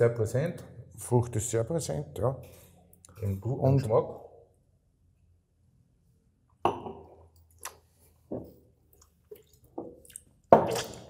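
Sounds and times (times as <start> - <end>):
wet sips and mouth sounds: 8.9 - 11.0.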